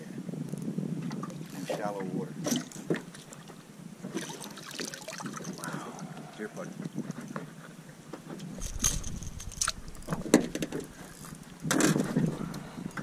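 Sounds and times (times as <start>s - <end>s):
wind rumble on microphone: 0.0s - 4.2s, 5.5s - 13.0s
rustling: 8.5s - 13.0s
handling clicks and knocks: 8.6s - 13.0s.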